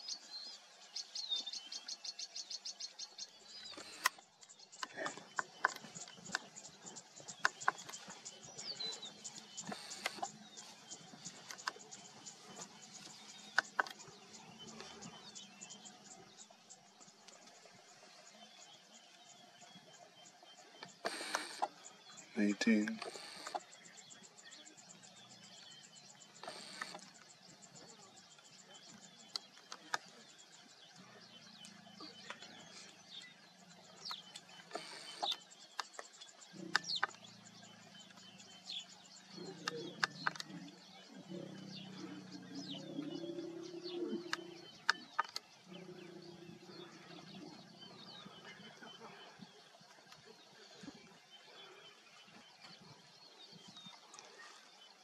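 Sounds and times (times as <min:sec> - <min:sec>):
birds chirping: 0:00.0 - 0:55.0
sharp clicks: 0:03.6 - 0:15.0, 0:20.8 - 0:21.8, 0:22.7 - 0:23.6, 0:34.0 - 0:37.3, 0:39.5 - 0:40.6.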